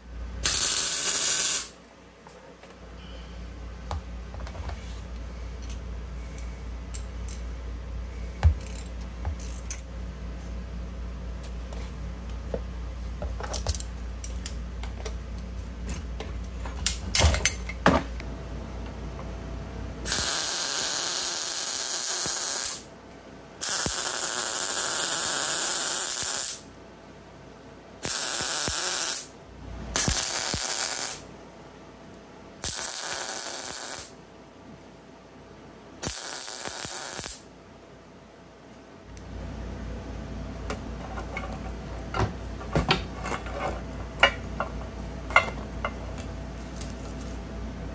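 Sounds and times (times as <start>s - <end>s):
steady low hum: 0.0s - 47.9s
welder hissing and crackling: 0.4s - 1.8s, 20.0s - 22.9s, 23.6s - 26.7s, 28.0s - 29.3s, 30.0s - 31.3s, 32.6s - 34.2s, 36.0s - 37.5s.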